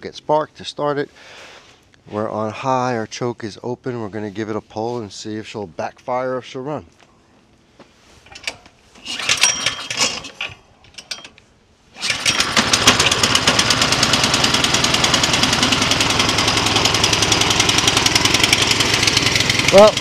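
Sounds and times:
recoil starter pulled: 0:08.2 - 0:11.4, 0:12.0 - 0:20.0
snowblower engine running: 0:12.0 - 0:20.0.

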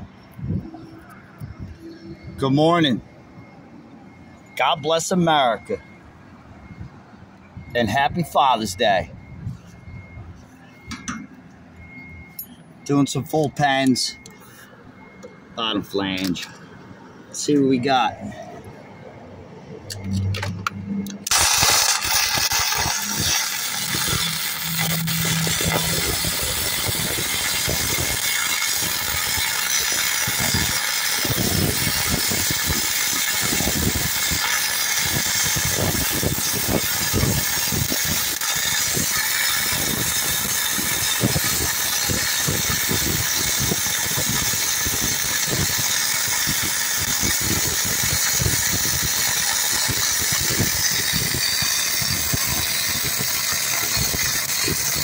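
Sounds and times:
welding arc crackling hiss: 0:21.3 - 0:55.0.

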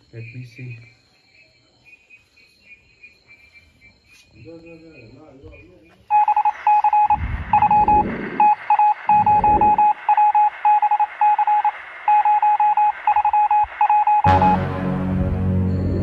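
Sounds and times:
electronic beeping: 0:04.8 - 0:15.0
music: 0:14.3 - 0:16.0
sustained low drone: 0:14.3 - 0:16.0.

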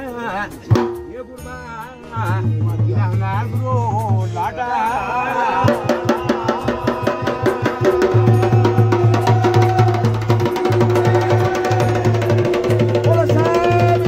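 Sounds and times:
fast percussion beat: 0:00.6 - 0:01.1, 0:05.3 - 0:14.0.

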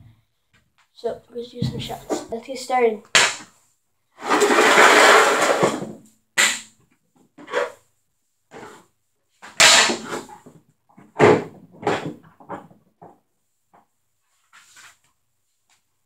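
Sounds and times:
hockey stick slapping shots: 0:03.2 - 0:03.5, 0:05.6 - 0:06.7, 0:09.6 - 0:10.3
hockey stick scraping: 0:04.2 - 0:06.5, 0:07.4 - 0:07.8, 0:09.5 - 0:10.5, 0:14.4 - 0:15.0.

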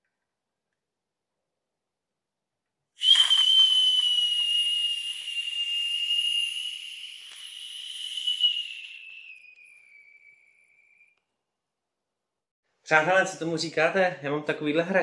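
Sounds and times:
steam hiss: 0:03.0 - 0:05.4
steam whistle: 0:03.0 - 0:11.2.

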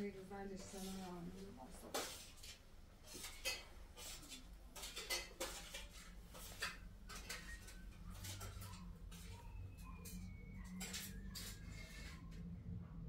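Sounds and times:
low steady hum: 0:06.7 - 0:13.0.

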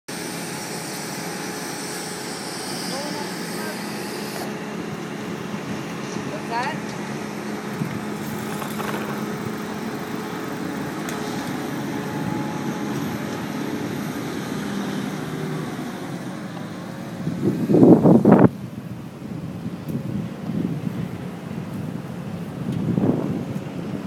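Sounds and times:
idling machinery drone: 0:00.1 - 0:24.0
street traffic hum: 0:00.1 - 0:24.0
wind buffeting microphone: 0:04.5 - 0:24.0.

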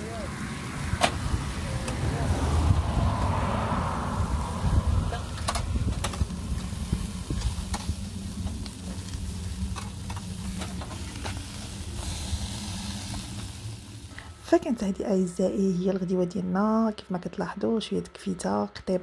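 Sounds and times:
meat sizzling on charcoal grill: 0:00.0 - 0:14.6
low steady rumble: 0:00.0 - 0:19.0.

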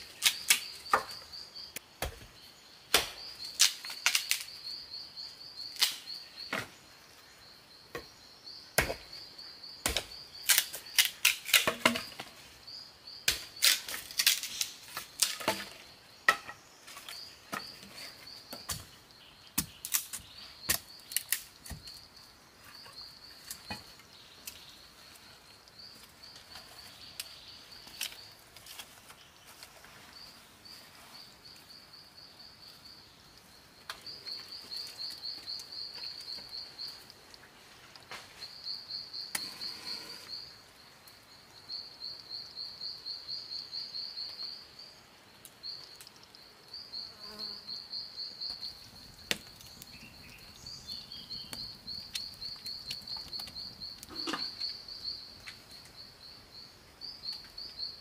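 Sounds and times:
insects trilling: 0:00.0 - 0:58.0
sharp knocks and cracks: 0:00.2 - 0:01.2, 0:02.0 - 0:02.3, 0:02.9 - 0:04.5, 0:08.8 - 0:09.1, 0:09.8 - 0:12.4, 0:13.3 - 0:17.7, 0:19.6 - 0:22.0, 0:49.2 - 0:49.8.

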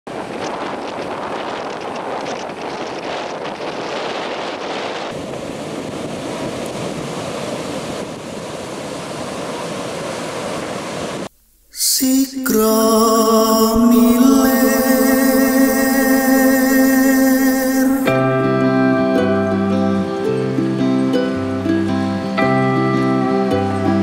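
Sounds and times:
surf breaking on a beach: 0:00.1 - 0:11.3
wind: 0:00.1 - 0:24.0
music with long held notes: 0:12.0 - 0:24.0.

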